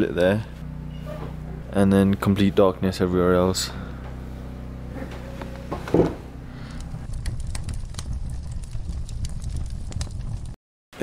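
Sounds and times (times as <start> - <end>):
wood fire crackling: 4.1 - 10.6
sharp pops from fire: 7.0 - 10.6.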